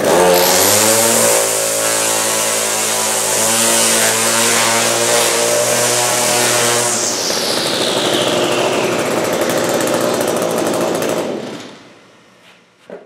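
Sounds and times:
trimmer line whipping plastic panel: 0:00.0 - 0:07.2
string trimmer engine running: 0:00.0 - 0:11.8.

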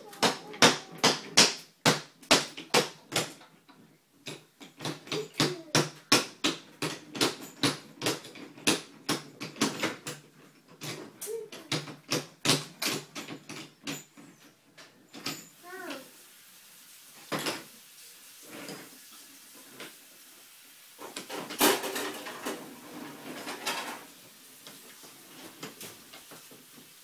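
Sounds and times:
wooden toy trains clacking: 0:00.0 - 0:15.5, 0:21.0 - 0:24.1.

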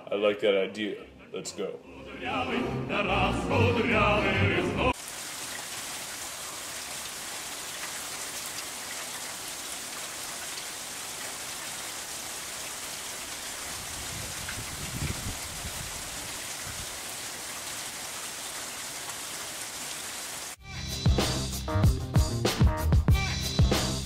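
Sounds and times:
sung music: 0:01.0 - 0:05.0
rain falling on pavement: 0:04.9 - 0:20.6.

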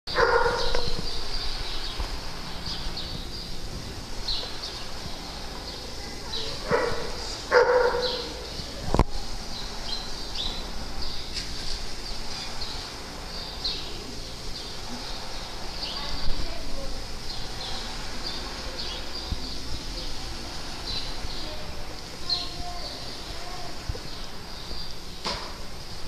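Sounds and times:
dog barking: 0:00.1 - 0:01.0, 0:06.6 - 0:08.4.

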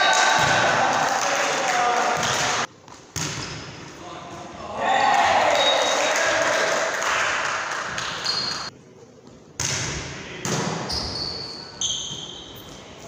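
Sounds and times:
volleyball hits echoing: 0:00.2 - 0:01.0, 0:02.1 - 0:03.8
shoe squeaks: 0:08.2 - 0:08.7, 0:10.9 - 0:13.0.

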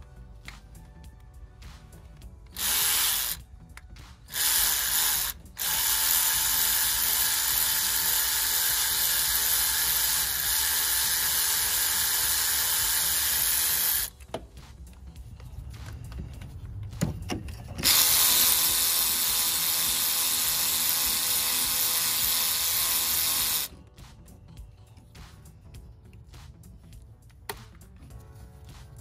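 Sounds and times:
cordless ratchet spinning: 0:02.6 - 0:03.5, 0:04.3 - 0:14.1, 0:17.8 - 0:23.7.

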